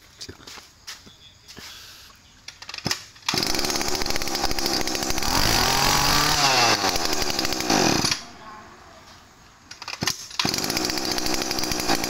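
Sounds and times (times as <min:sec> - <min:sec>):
brush cutter engine revving: 0:03.2 - 0:08.3, 0:09.8 - 0:12.0.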